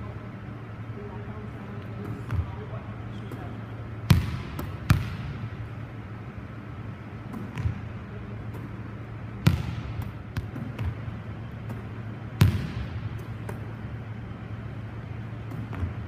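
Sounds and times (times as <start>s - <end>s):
volleyball hits echoing: 3.3s - 5.7s, 7.2s - 13.8s, 15.4s - 16.0s.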